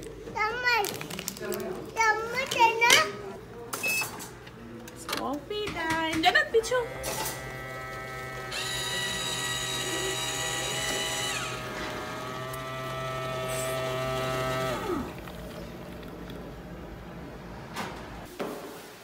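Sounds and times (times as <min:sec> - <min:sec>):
vending machine motor whine: 0:06.6 - 0:17.4.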